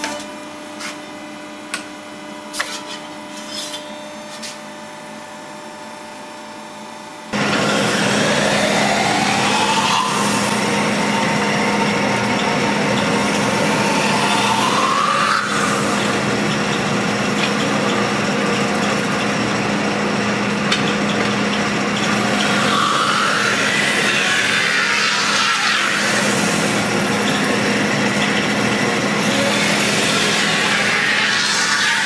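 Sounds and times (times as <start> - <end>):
lathe humming: 7.3 - 32.0.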